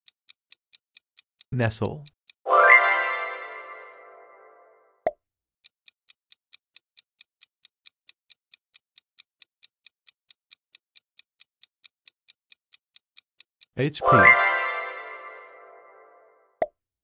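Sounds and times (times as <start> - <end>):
countdown timer ticking: 1.4 - 4.8, 13.6 - 16.4
musical tone: 2.5 - 4.8, 13.8 - 16.4.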